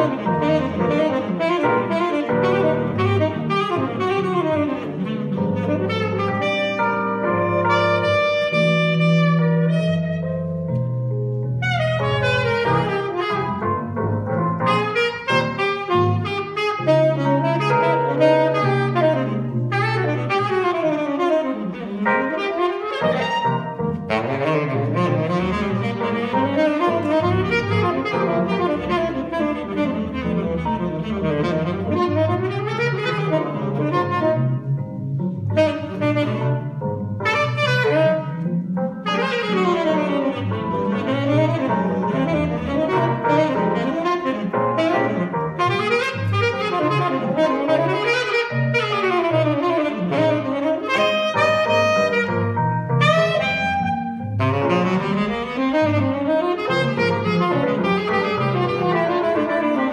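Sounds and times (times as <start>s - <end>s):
saxophone solo: 0.0s - 10.9s, 11.5s - 59.9s
low bass notes: 0.0s - 14.9s.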